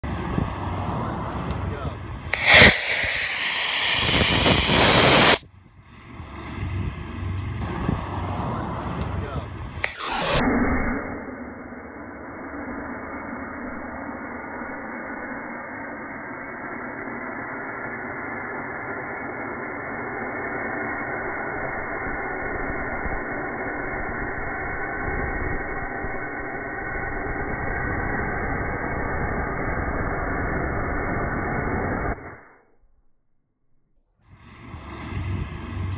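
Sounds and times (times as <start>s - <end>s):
rocket motor hissing: 1.6s - 5.4s, 8.8s - 32.5s.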